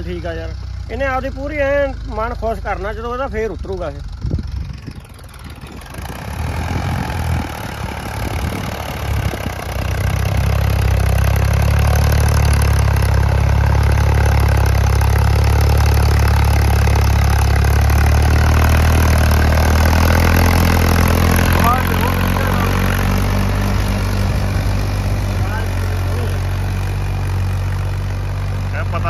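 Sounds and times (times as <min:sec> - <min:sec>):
tractor engine running: 0:00.0 - 0:29.0.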